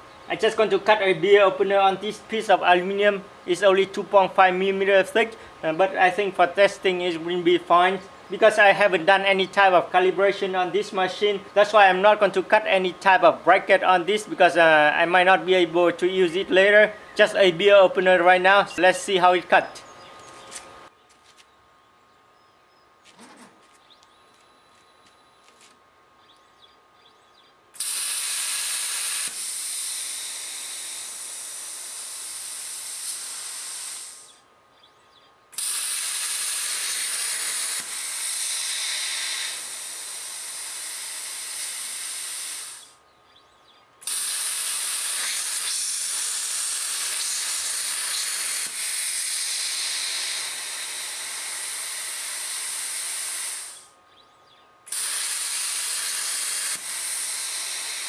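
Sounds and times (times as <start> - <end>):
compressed air hissing through torch: 27.8 - 34.4, 35.6 - 43.0, 44.0 - 53.9, 54.9 - 58.0.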